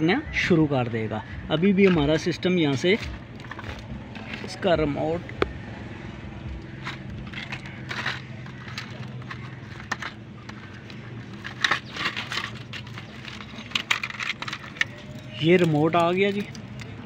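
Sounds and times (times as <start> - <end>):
plastic bag crinkling: 6.9 - 16.9.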